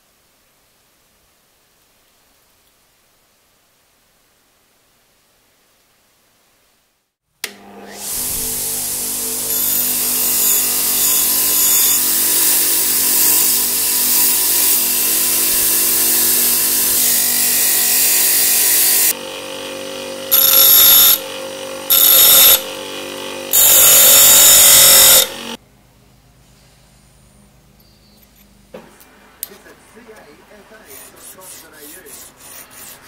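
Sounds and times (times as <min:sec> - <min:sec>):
bench grinder grinding metal: 0:07.5 - 0:25.6.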